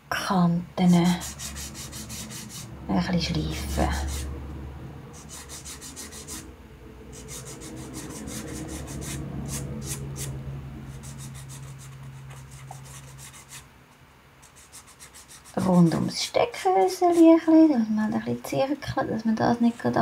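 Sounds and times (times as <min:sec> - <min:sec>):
sanding sponge scratching: 0:00.9 - 0:02.7, 0:03.6 - 0:04.3, 0:05.2 - 0:06.4, 0:07.1 - 0:13.7, 0:14.4 - 0:16.1.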